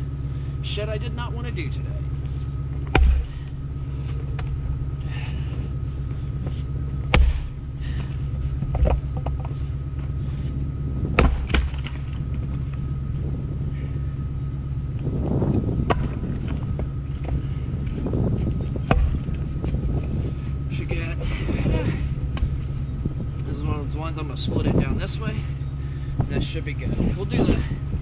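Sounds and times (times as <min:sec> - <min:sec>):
low rumble: 0:00.0 - 0:28.0
axe striking wood: 0:02.9 - 0:03.3, 0:07.1 - 0:07.6, 0:11.2 - 0:12.0, 0:15.9 - 0:16.2, 0:18.8 - 0:19.2.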